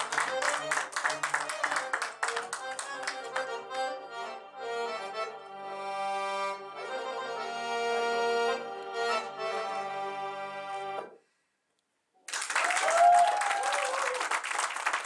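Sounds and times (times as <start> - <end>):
belly-dance song: 0.0 - 5.3
audience applause and cheers: 12.3 - 15.0.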